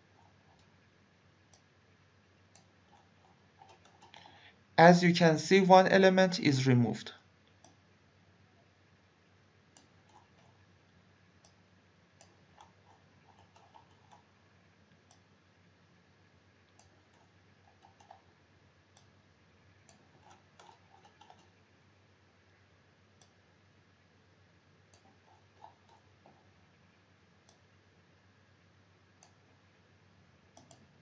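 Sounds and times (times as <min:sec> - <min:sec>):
computer mouse clicks: 0:00.1 - 0:00.7, 0:01.5 - 0:01.7, 0:02.5 - 0:04.5, 0:07.5 - 0:07.8, 0:09.7 - 0:10.6, 0:11.4 - 0:11.6, 0:12.2 - 0:15.3, 0:16.7 - 0:18.3, 0:18.9 - 0:19.2, 0:19.8 - 0:21.6, 0:23.2 - 0:23.4, 0:24.9 - 0:26.5, 0:27.4 - 0:27.8, 0:29.1 - 0:29.5, 0:30.5 - 0:31.0.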